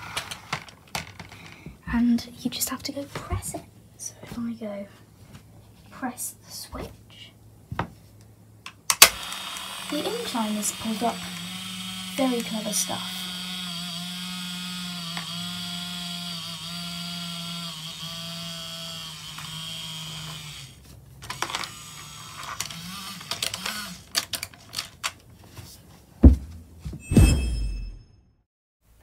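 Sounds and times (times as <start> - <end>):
small electric motor humming: 9.0 - 24.2
toy clicks and knocks: 21.2 - 25.2.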